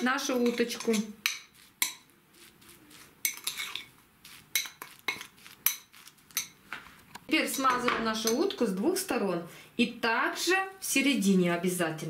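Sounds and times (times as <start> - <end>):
metal spoon scraping ceramic bowl: 0.0 - 6.6, 7.4 - 8.6.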